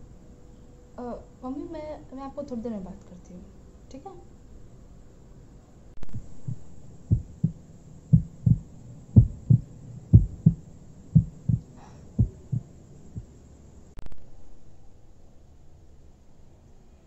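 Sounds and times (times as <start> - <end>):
heartbeat thumps: 6.0 - 13.4.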